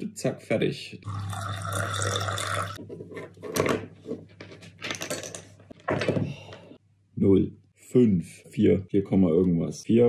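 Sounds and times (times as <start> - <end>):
handling noises on wooden desk: 2.8 - 6.3.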